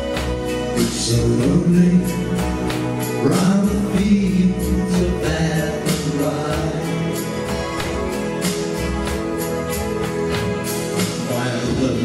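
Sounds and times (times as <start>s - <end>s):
strummed acoustic guitar: 0.0s - 12.0s
men singing: 0.8s - 7.3s, 11.3s - 12.0s.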